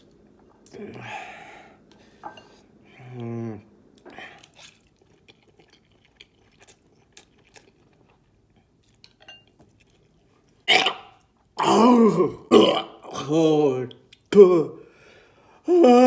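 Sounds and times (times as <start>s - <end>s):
person chewing and slurping noodles: 2.7s - 11.6s.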